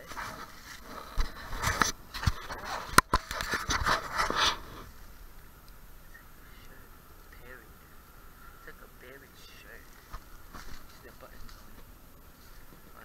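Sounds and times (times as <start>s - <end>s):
footsteps crunching dry leaves: 10.0s - 13.0s.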